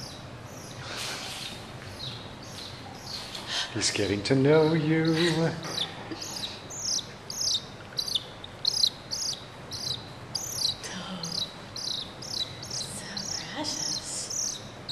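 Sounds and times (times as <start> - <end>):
mongoose chirping: 5.0 - 14.9.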